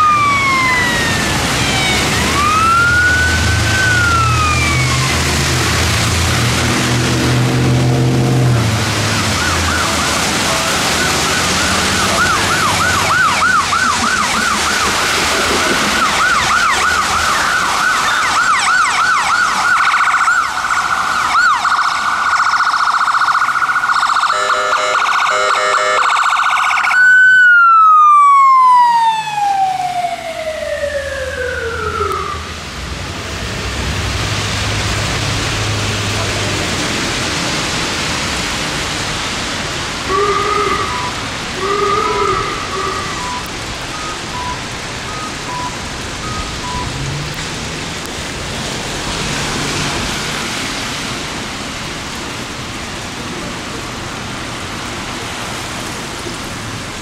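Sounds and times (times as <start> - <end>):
ambulance siren: 0.0 - 32.7, 40.0 - 47.2.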